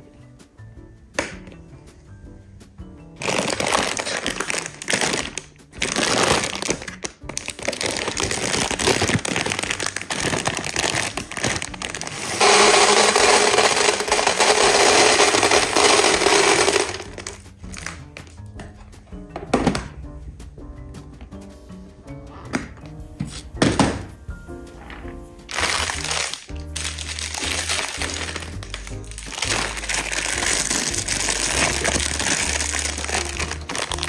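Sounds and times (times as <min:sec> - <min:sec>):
dry food rattling as poured: 0:03.2 - 0:06.8, 0:07.4 - 0:17.9, 0:25.5 - 0:34.0
packaging crinkling: 0:03.2 - 0:18.0, 0:25.5 - 0:34.0.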